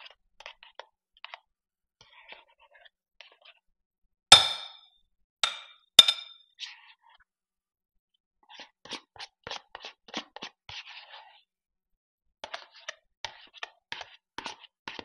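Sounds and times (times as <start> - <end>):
soft taps and scrapes: 0.0 - 3.6, 12.4 - 15.0
plastic tub knocking on glass bowl: 5.4 - 6.3.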